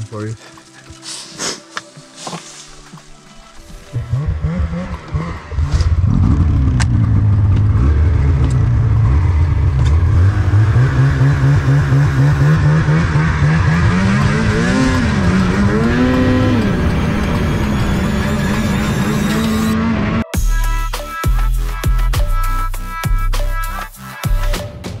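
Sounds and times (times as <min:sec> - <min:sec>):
snowmobile engine running: 0:03.5 - 0:20.3.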